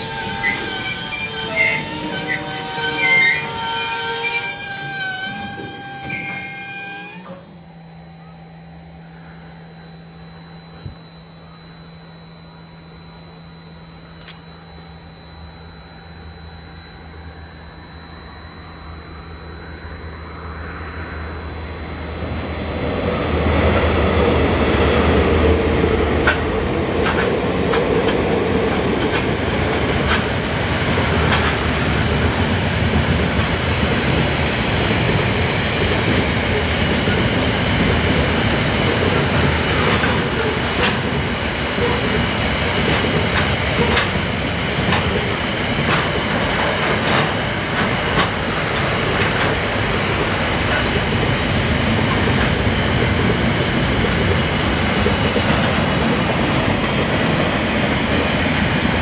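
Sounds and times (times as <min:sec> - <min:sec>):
freight train rumbling: 0:22.2 - 0:59.0
train wheels clicking on rail joints: 0:26.2 - 0:59.0.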